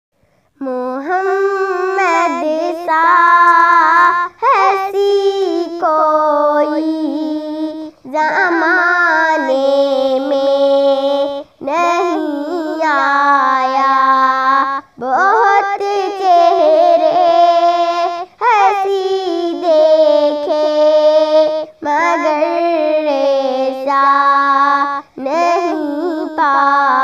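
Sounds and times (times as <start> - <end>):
short breaths: 0.2 - 0.6
girl singing unaccompanied: 0.5 - 27.0.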